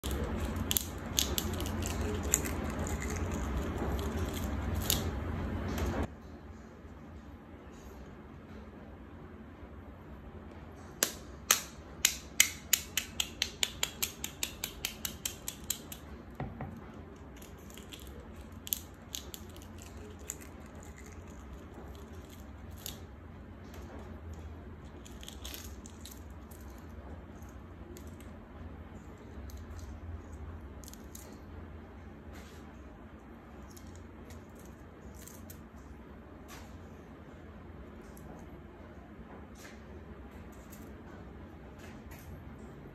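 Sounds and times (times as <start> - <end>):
egg shells tapped: 0.0 - 5.1, 11.0 - 23.0
shell crackling as peeled: 0.0 - 5.2, 11.0 - 16.1, 17.1 - 23.1, 24.8 - 26.9.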